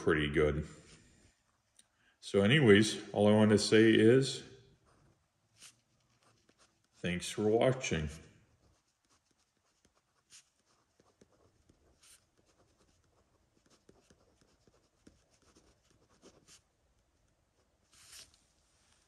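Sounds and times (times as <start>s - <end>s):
pen scratching on paper: 4.8s - 7.0s, 8.5s - 16.8s.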